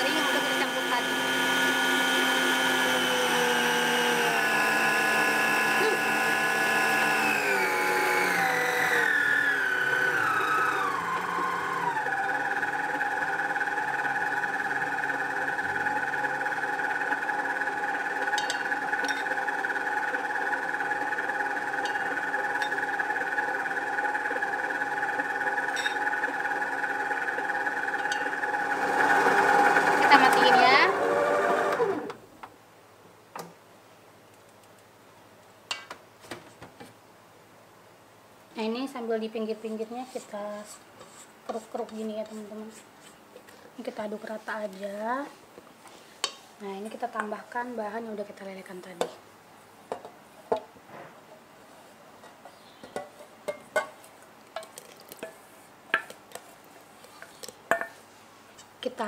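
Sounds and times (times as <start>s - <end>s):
stand mixer motor whining: 0.0s - 32.2s.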